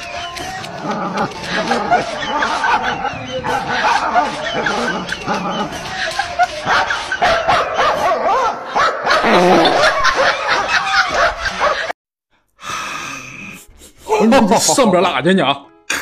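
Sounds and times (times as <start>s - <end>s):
people laughing: 0.1s - 11.9s
dog barking: 6.5s - 9.3s.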